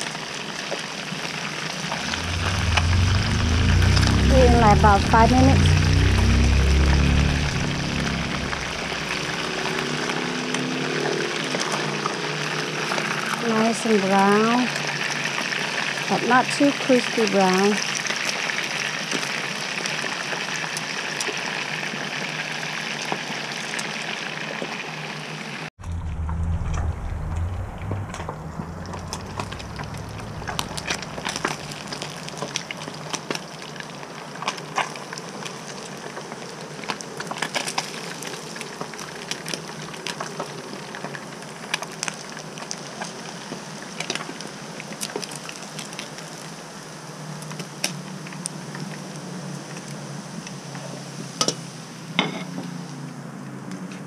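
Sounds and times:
oil popping and crackling: 0.0s - 24.8s, 25.8s - 46.6s
fish sizzling in hot oil: 0.0s - 25.5s
low rumble: 2.0s - 10.3s, 25.8s - 32.9s.

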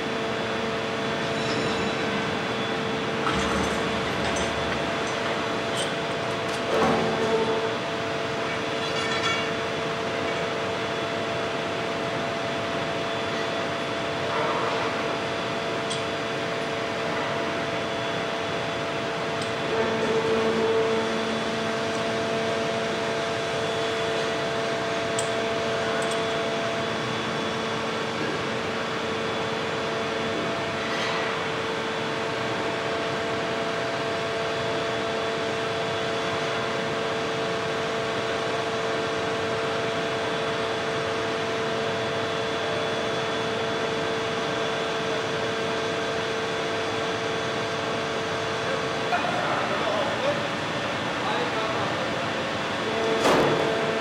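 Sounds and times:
hydraulic press humming: 0.9s - 10.6s.

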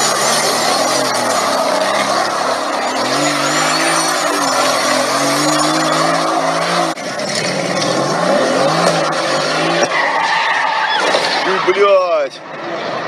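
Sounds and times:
tyres squealing: 0.0s - 7.0s
sports car engine revving: 0.0s - 10.0s.

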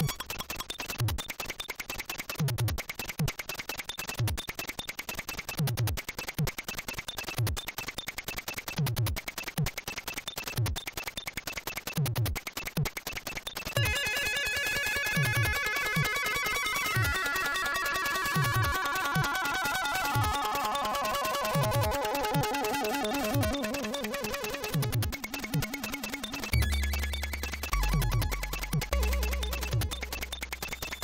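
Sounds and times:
pitch-sweeping kick drums: 26.6s - 30.5s.

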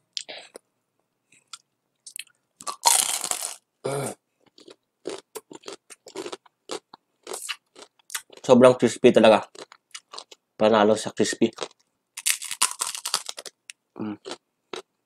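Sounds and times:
crunchy chewing: 4.5s - 8.5s, 11.5s - 13.6s.

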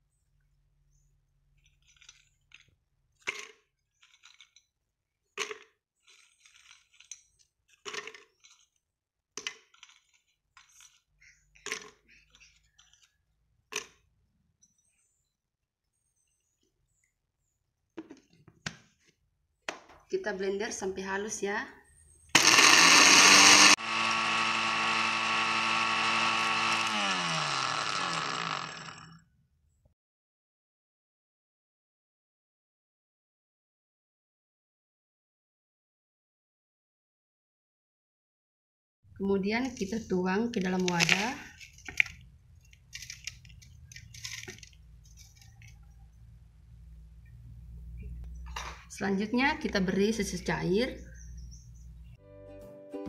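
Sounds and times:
blender grinding: 22.4s - 29.2s
blender motor whine: 22.4s - 29.2s
cookies clicking into plastic jar: 40.6s - 45.8s.

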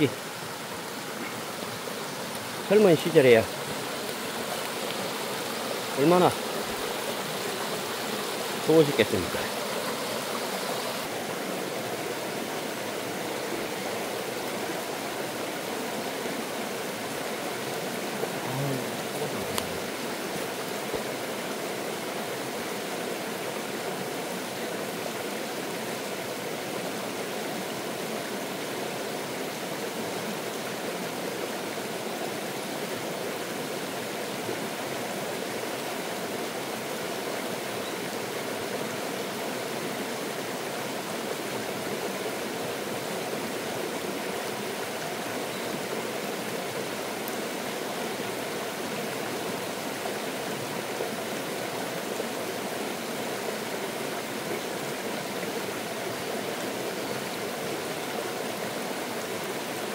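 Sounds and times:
stream flowing over rocks: 0.0s - 59.9s.

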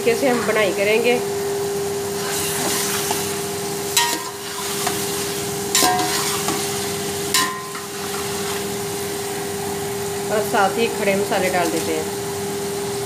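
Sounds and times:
chicken sizzling in pot: 0.1s - 13.0s
metal spatula clanking on pot: 4.0s - 5.0s, 5.7s - 6.7s, 7.3s - 8.7s.

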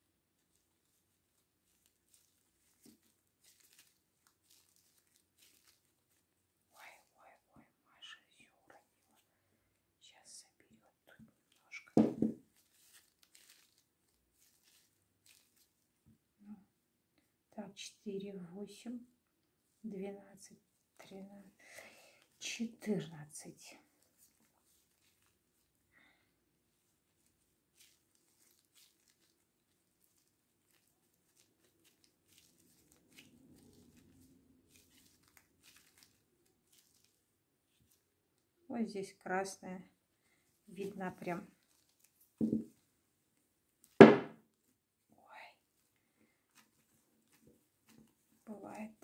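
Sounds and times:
plastic gloves rustling: 0.0s - 7.4s, 11.4s - 16.4s, 20.6s - 38.6s, 39.9s - 49.0s
dull thumps: 42.4s - 42.7s.

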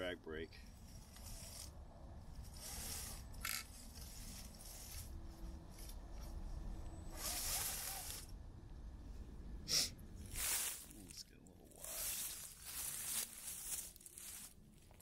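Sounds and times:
faint motor whine: 0.0s - 10.8s.

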